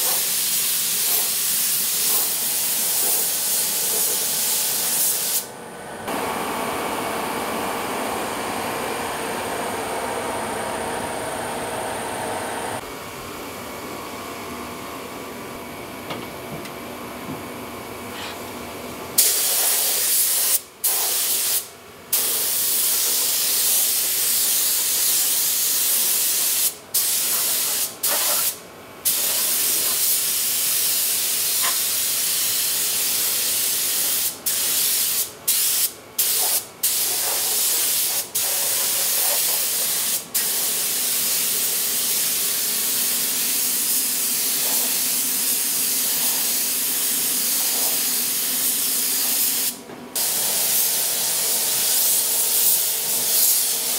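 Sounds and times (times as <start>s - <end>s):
paint spray gun hissing: 0.0s - 5.5s, 19.2s - 53.9s.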